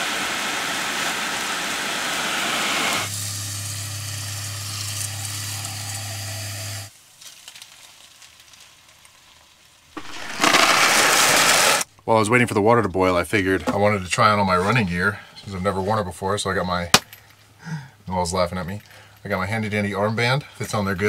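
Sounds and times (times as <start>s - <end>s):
loud hiss: 0.0s - 6.9s, 10.0s - 11.8s.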